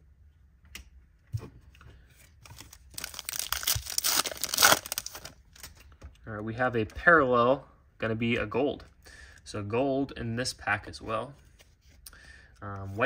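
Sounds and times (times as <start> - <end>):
foil pack crinkling rip: 2.5 - 5.7.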